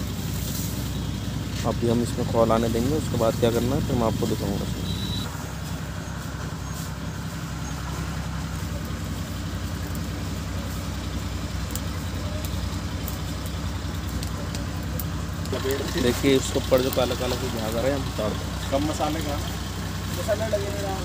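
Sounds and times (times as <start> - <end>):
engine running steadily: 0.0 - 21.0
wood fire crackling: 0.0 - 21.0.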